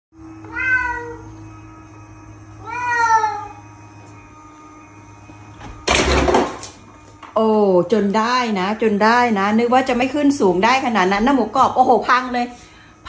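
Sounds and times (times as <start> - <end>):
cat meowing: 0.5 - 1.3, 2.6 - 3.6.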